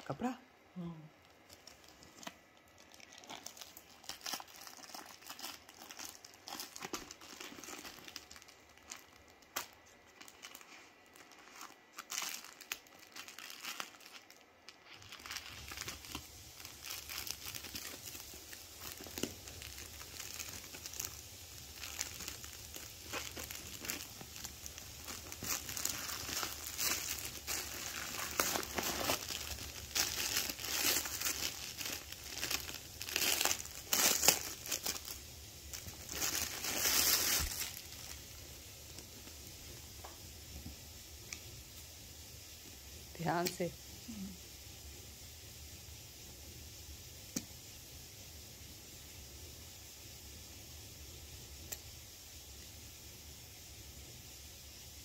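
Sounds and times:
plastic wrapping crinkling and tearing: 0:01.2 - 0:39.8.

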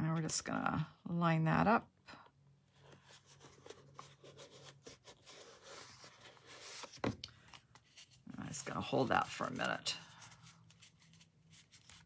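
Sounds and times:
cardstock rustling and rubbing: 0:02.8 - 0:12.0.

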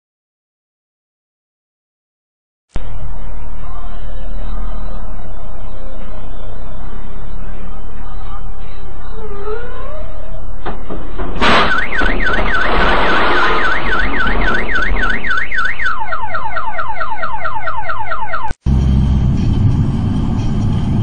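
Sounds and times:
car alarm wailing and chirping: 0:02.8 - 0:18.6
loud vehicle crash: 0:10.6 - 0:15.5.

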